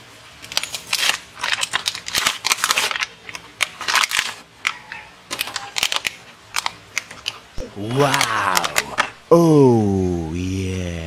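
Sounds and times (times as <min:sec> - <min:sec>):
wrapper tearing: 0:00.4 - 0:07.4
plastic packaging crinkling: 0:00.4 - 0:07.5.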